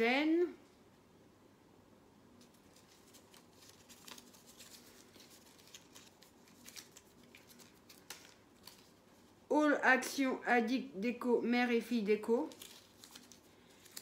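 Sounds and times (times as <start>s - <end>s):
paper crinkling: 2.4s - 9.5s, 12.1s - 14.0s.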